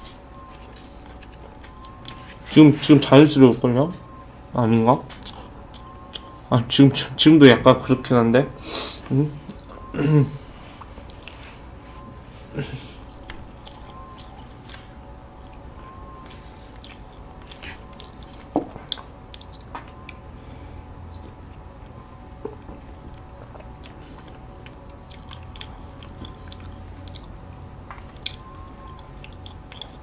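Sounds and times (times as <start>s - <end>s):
wet soft chewing: 0.0s - 3.1s, 4.9s - 6.5s, 9.4s - 9.9s, 10.6s - 20.3s, 21.0s - 30.0s
mouth clicks and smacks: 16.8s - 20.2s, 23.4s - 30.0s.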